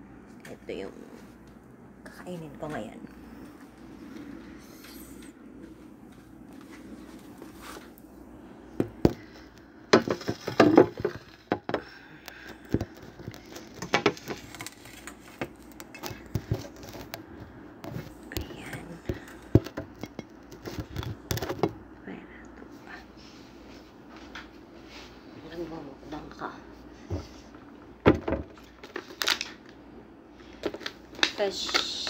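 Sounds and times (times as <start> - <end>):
foil tray crinkling: 12.3 - 17.2, 28.6 - 29.6, 30.4 - 32.0.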